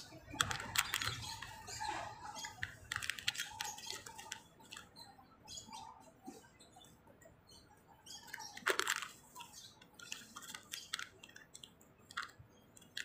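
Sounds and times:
plastic packet crinkling: 8.4s - 9.4s.

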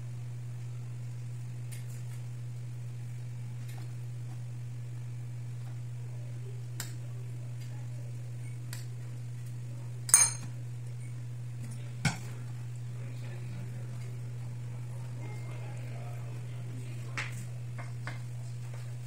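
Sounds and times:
steady low hum: 0.0s - 19.0s
cutlery clinking on ceramic plate: 10.1s - 10.5s.

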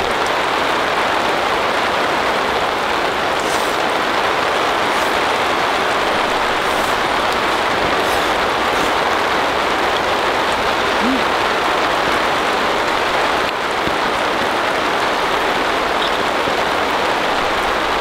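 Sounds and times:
heavy rain on a tarp: 0.0s - 18.0s.

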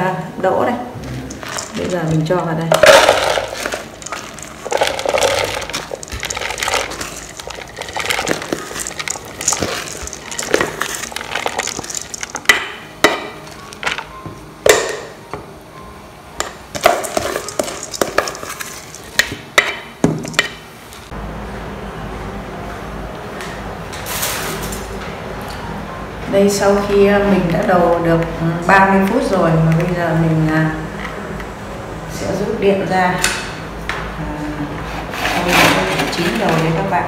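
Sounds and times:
spoon scraping metal bowl: 1.2s - 12.6s, 16.8s - 19.4s, 35.0s - 36.8s.

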